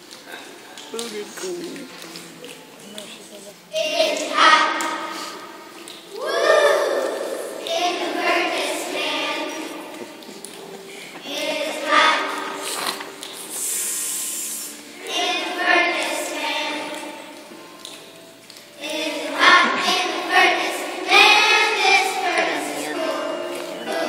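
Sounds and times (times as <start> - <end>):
children singing in unison: 3.7 - 10.2, 11.1 - 13.3, 14.7 - 17.5, 18.8 - 24.0
brief hiss: 12.6 - 14.9.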